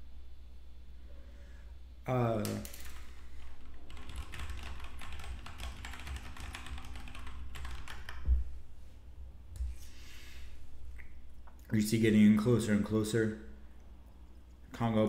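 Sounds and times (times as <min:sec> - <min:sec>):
typing on computer keyboard: 0:02.4 - 0:08.2.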